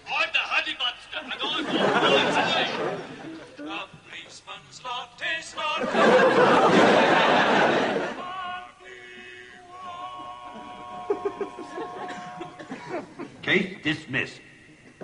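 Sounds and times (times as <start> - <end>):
studio audience laughing: 1.2 - 3.5, 5.8 - 8.2, 11.0 - 13.4
man singing: 8.2 - 12.6.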